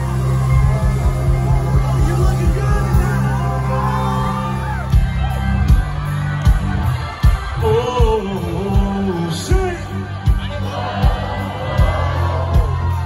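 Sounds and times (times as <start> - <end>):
drum beat: 0.0 - 3.4, 4.7 - 13.0
amplified country band: 0.0 - 13.0
person singing: 7.5 - 10.2.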